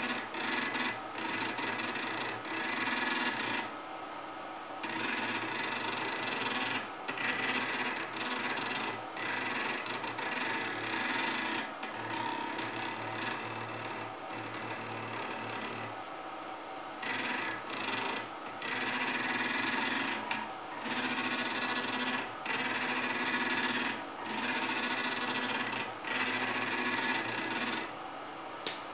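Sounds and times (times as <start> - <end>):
small stepper motor whirring: 0.0 - 3.7, 4.8 - 16.0, 17.0 - 28.0.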